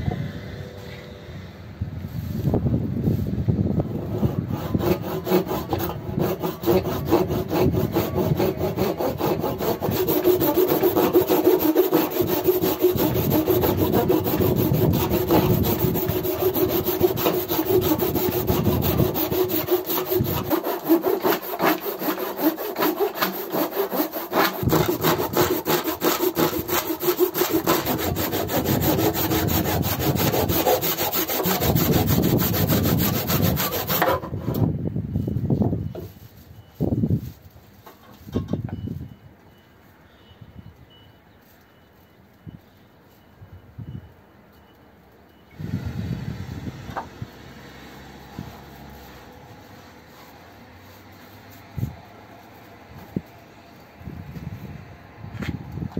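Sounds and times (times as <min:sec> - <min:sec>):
hand saw cutting wood: 0:03.9 - 0:34.6.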